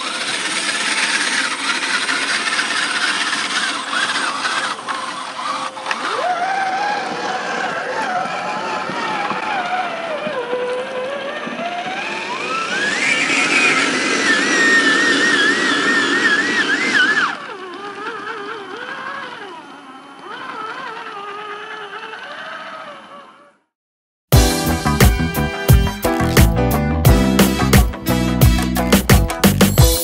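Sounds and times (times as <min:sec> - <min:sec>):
electric motor whine of toy truck: 0:00.0 - 0:23.7.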